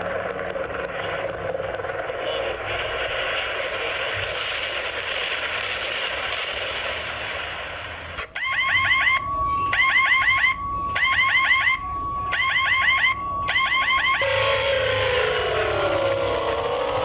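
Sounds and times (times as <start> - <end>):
falling siren tone: 0.0 - 3.6, 8.2 - 17.0
crackling hiss: 0.0 - 8.3
electronic alarm chirps and beep: 8.4 - 16.4.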